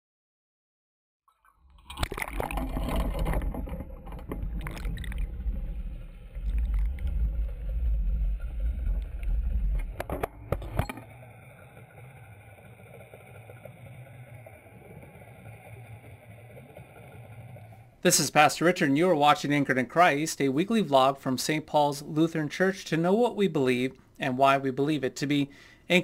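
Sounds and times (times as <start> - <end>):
underwater hum: 1.4 - 21.3
water rushing and splashing: 1.8 - 19.4
deep rumble: 2.0 - 18.0.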